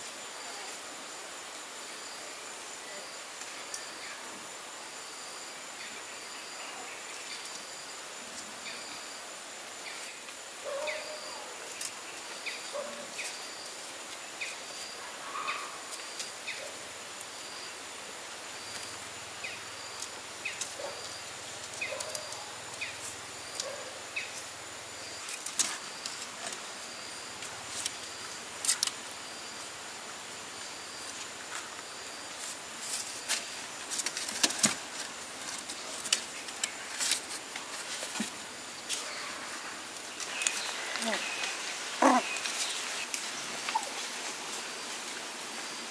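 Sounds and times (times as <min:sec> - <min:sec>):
high insect buzz: 0:04.9 - 0:45.9
paws clicking on bamboo slats: 0:20.5 - 0:23.9, 0:32.9 - 0:39.1.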